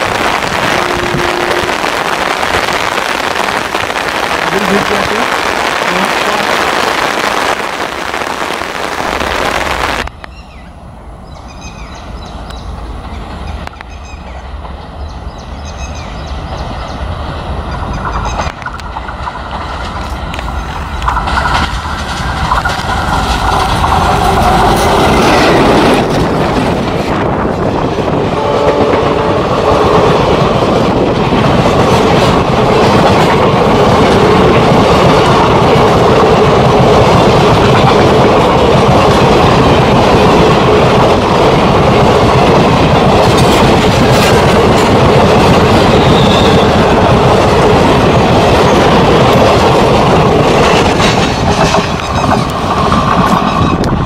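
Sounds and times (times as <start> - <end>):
heavy rain hiss: 0.0 - 10.2
diesel locomotive engine rumble: 0.0 - 54.0
train wheels clattering over rail joints: 17.7 - 29.2, 29.8 - 54.0.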